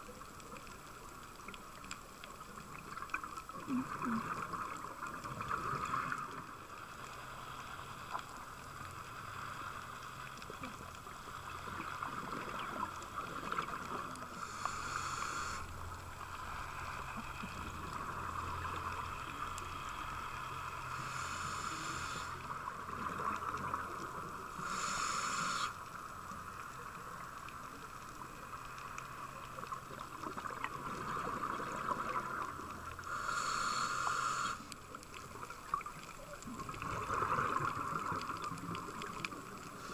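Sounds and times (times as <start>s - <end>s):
exhaled regulator bubbles: 2.6s - 6.3s, 35.2s - 39.9s
underwater hiss: 3.0s - 10.8s, 11.4s - 39.9s.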